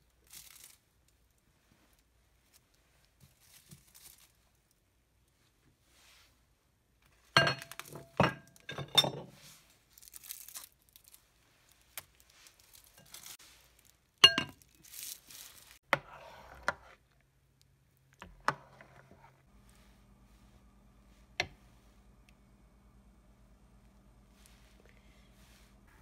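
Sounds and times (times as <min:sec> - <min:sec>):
spoon scraping porridge: 0:15.8 - 0:17.2, 0:18.2 - 0:19.5.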